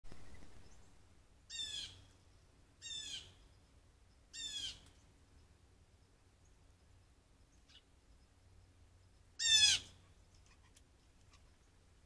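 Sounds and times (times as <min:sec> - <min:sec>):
blue jay harsh calls: 0:01.5 - 0:02.1, 0:02.8 - 0:03.4, 0:04.3 - 0:04.8, 0:09.4 - 0:11.6.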